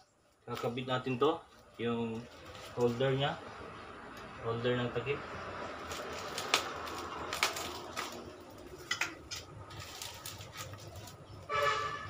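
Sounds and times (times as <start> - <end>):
bubble wrap crinkling: 0.2 - 3.4, 5.7 - 11.6.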